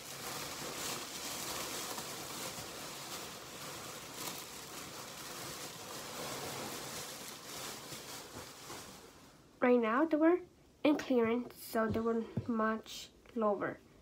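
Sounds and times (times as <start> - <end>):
plastic bag rustling and crinkling: 0.0 - 9.6.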